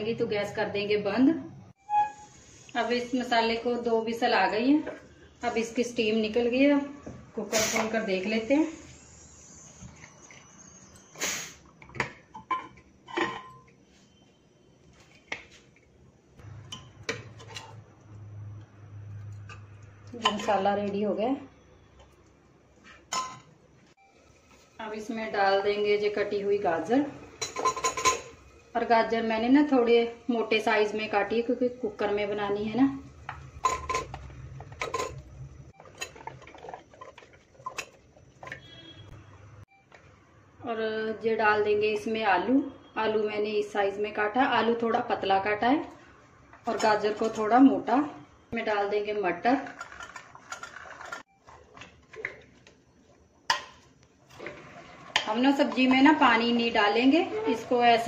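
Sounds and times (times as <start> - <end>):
metal lid clinking and knocking: 27.4 - 28.3
ladle scraping inside pot: 35.8 - 38.8.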